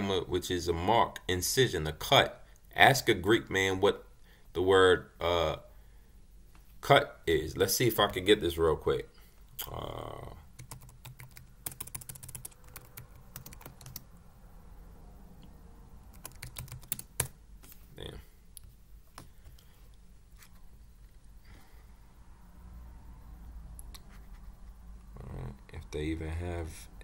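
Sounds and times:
keyboard typing: 0:10.6 - 0:14.1, 0:16.1 - 0:17.8, 0:19.1 - 0:19.7.

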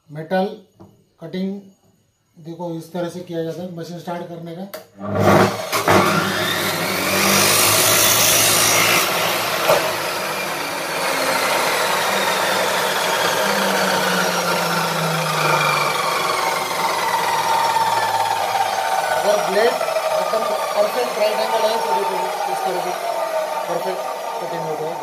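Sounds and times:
saw grinding through metal: 0:05.0 - 0:25.0
saw disc spinning down whine: 0:05.5 - 0:25.0.

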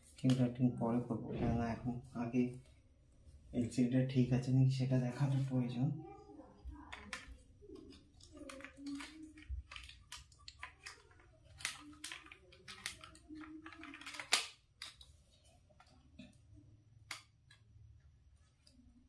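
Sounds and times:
laptop parts clicking and knocking: 0:06.9 - 0:15.1.

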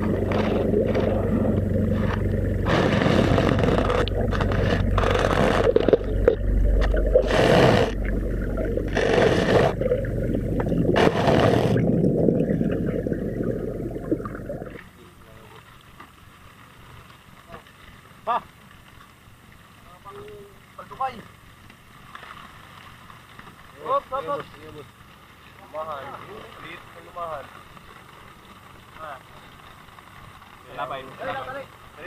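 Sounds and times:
low underwater rumble: 0:00.0 - 0:15.4
rushing water bursts: 0:00.0 - 0:32.0.

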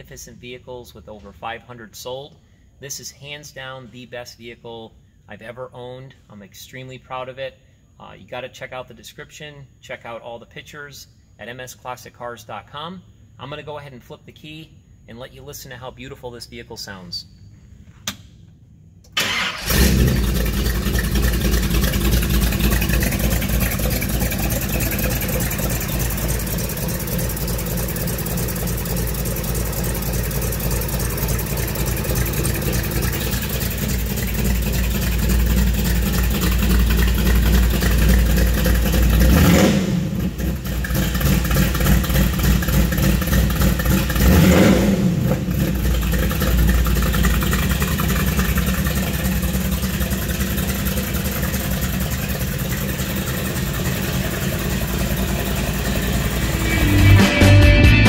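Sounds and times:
car engine idling and revving: 0:19.3 - 0:58.0.

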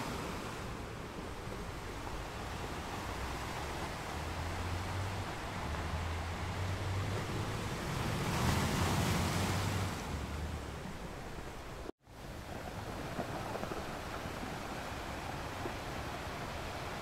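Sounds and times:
ocean waves breaking on shore: 0:00.0 - 0:17.0.

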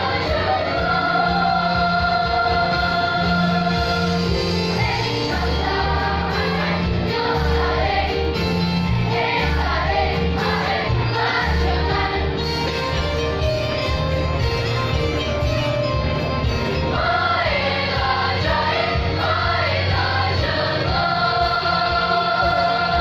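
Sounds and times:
choir singing: 0:00.0 - 0:12.5, 0:16.9 - 0:23.0.

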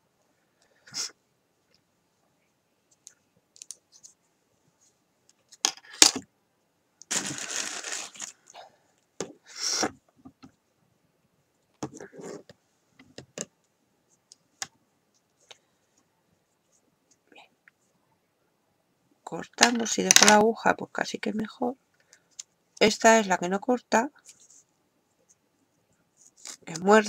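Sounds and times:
yarn rustling: 0:07.1 - 0:08.5.

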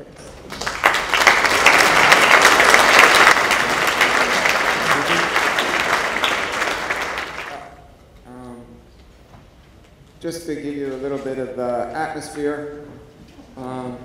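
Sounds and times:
audience applauding: 0:00.2 - 0:07.9.

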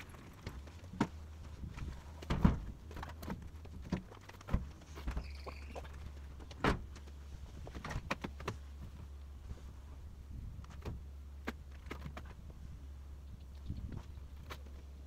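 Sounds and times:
low steady hum: 0:00.0 - 0:15.0
brief squeak: 0:05.1 - 0:05.9.

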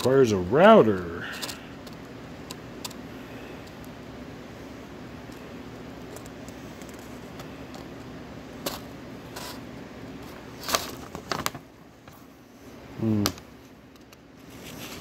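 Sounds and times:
low room hum: 0:00.0 - 0:15.0
paper crackling: 0:10.6 - 0:11.7.

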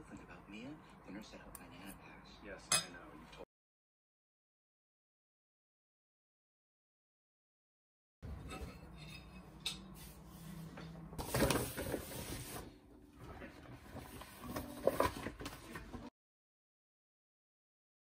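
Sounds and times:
dishes clattering in steel sink: 0:08.3 - 0:09.9
fork scraping ceramic plate: 0:08.3 - 0:10.1.

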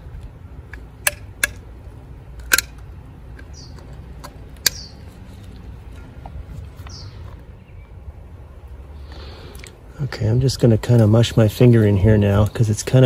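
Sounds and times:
low steady rumble: 0:00.0 - 0:13.0
caulking gun clicks: 0:00.2 - 0:01.7, 0:02.4 - 0:04.9
bird chirping: 0:03.4 - 0:08.2.

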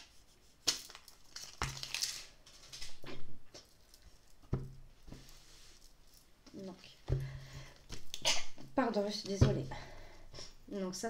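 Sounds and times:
cards and cardboard rustling: 0:00.0 - 0:07.0.

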